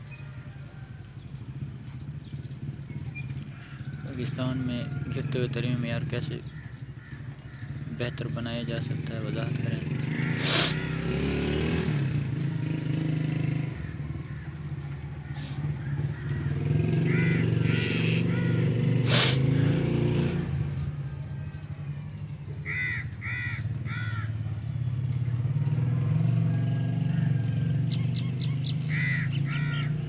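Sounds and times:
crows cawing: 0:03.3 - 0:09.0, 0:09.7 - 0:11.7, 0:12.9 - 0:20.1, 0:22.6 - 0:27.8, 0:28.7 - 0:30.0.

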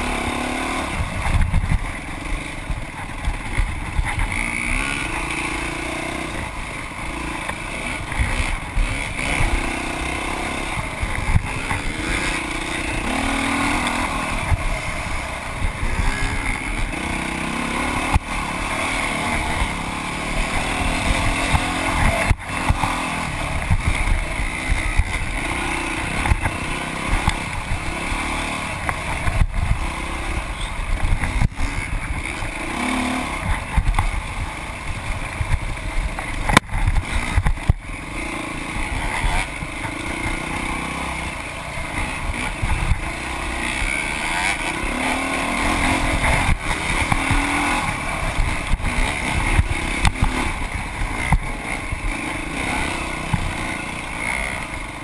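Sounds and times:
dirt bike engine revving: 0:00.0 - 0:55.0
bike knocks and rattles over bumps: 0:33.4 - 0:37.9, 0:44.3 - 0:55.0.

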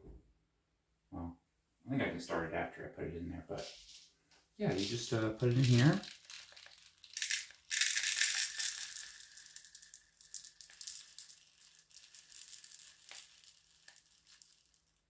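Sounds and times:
beads pouring into plastic cap: 0:04.7 - 0:15.0.

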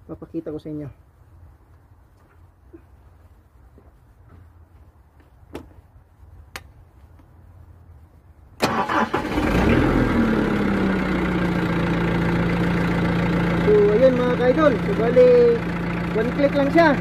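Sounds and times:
diesel engine starting and idling: 0:08.6 - 0:17.0.

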